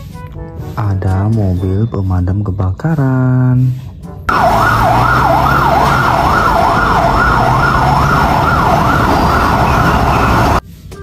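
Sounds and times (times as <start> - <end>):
fire engine siren yelp: 4.3 - 10.6
truck rumble: 4.3 - 10.6
street noise: 4.3 - 10.7.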